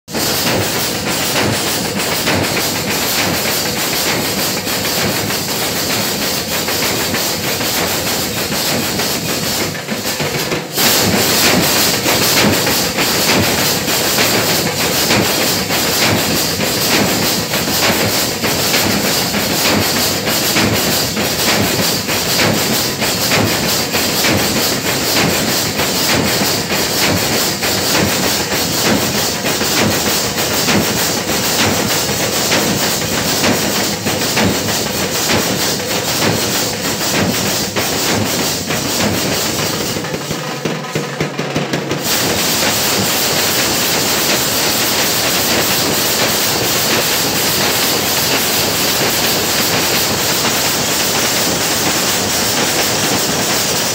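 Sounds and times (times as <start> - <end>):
dhol drums beaten fast: 0.1 - 53.9.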